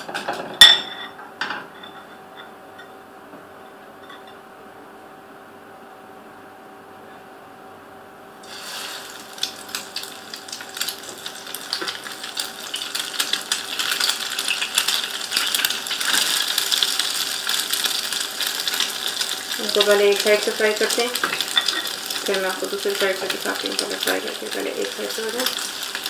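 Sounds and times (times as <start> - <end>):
bread sizzling in a pan: 8.4 - 26.0.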